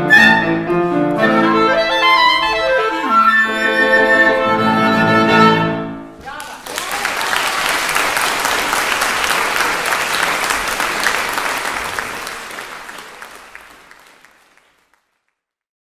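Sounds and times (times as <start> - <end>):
audience applauding: 6.2 - 15.4.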